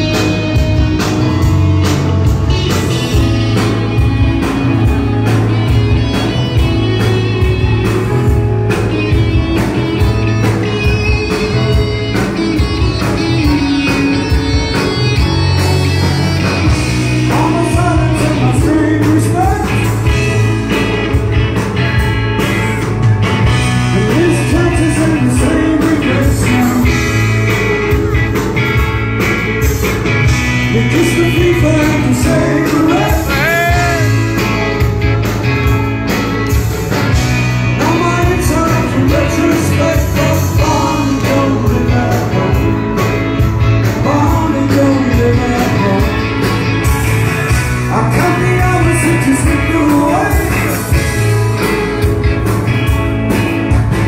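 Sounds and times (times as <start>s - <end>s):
bass guitar: 0.0s - 54.0s
drums: 0.0s - 54.0s
electric guitar: 0.0s - 54.0s
man singing: 16.6s - 20.7s, 23.7s - 27.5s, 30.6s - 34.5s, 37.6s - 46.6s, 47.8s - 51.2s.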